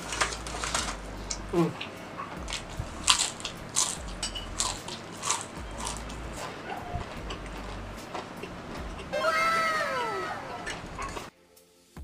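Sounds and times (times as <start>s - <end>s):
potato chip crunching: 0.0s - 6.4s.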